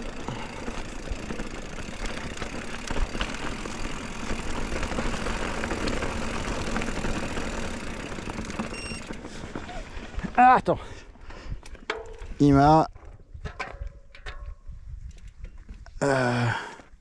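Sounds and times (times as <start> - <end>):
bike rattling and clicking: 0.0 - 16.6
bike tyre rumble on trail: 0.0 - 17.0
wind buffeting microphone: 12.4 - 16.0.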